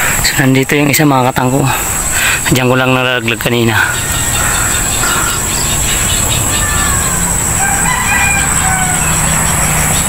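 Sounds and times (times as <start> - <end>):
high-pitched insect chorus: 0.0 - 10.0
faint rooster crowing: 6.5 - 9.7.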